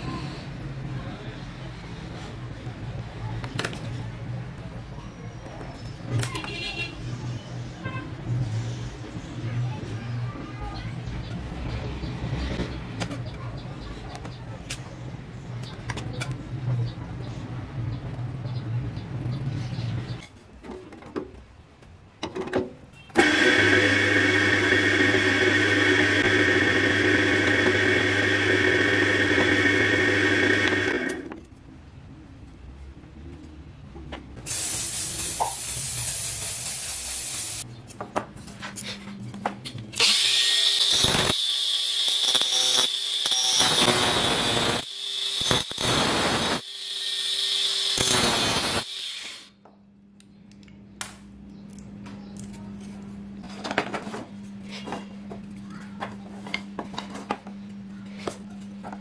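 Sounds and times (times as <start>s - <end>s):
angle grinder cutting steel: 23.2s - 31.3s, 40.0s - 49.5s
drill press boring wood: 23.2s - 31.3s, 40.0s - 49.5s.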